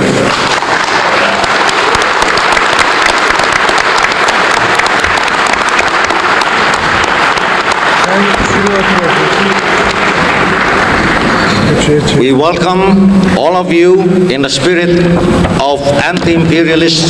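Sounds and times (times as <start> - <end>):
large audience applauding: 0.0 - 12.3.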